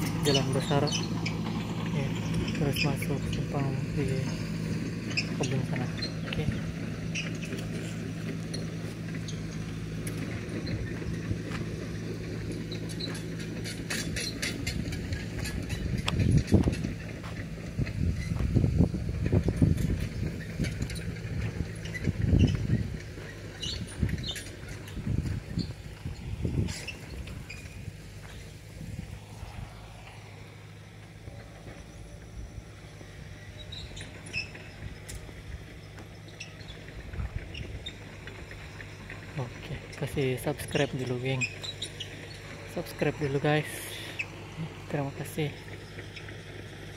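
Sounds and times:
excavator diesel engine running: 0.0 - 46.9.

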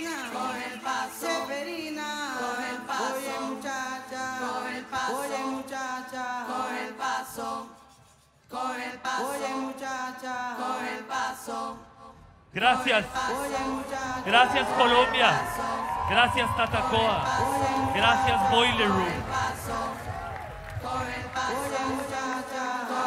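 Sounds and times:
chanted singing: 12.6 - 23.0.

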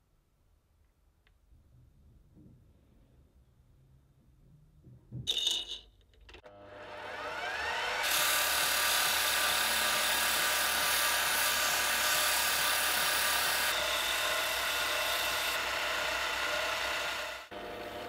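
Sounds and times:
lathe motor whine: 6.5 - 18.0
sanding hiss on spinning wood: 8.1 - 15.6.

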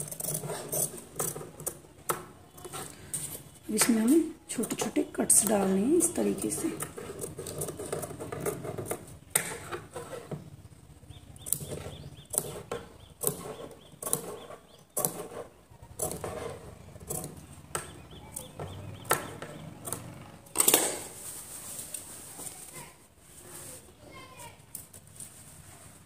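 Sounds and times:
shears snipping fabric: 2.7 - 10.2.

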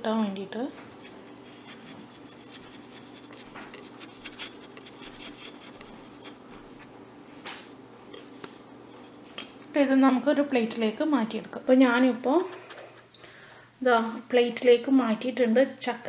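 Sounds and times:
knife scraping steel bowl: 0.9 - 6.9.

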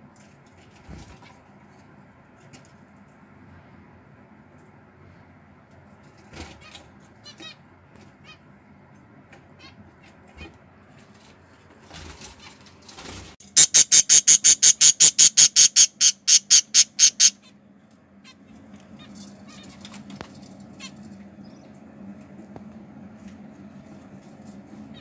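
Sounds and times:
budgerigars calling: 13.5 - 17.5.

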